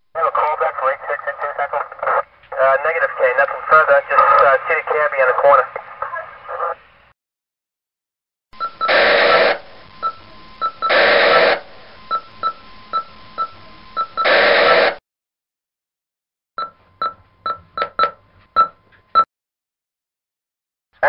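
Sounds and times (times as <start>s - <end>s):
radio voice: 0.1s - 6.9s
radio static hiss: 0.1s - 7.1s, 8.9s - 12.1s, 13.6s - 15.0s
static bursts: 8.8s - 12.1s, 14.2s - 15.0s.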